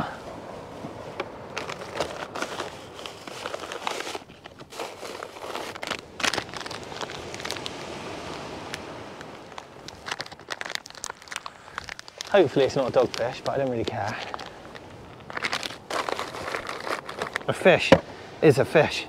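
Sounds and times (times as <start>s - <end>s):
plastic packaging crinkling: 1.6s - 8.4s, 9.4s - 17.6s.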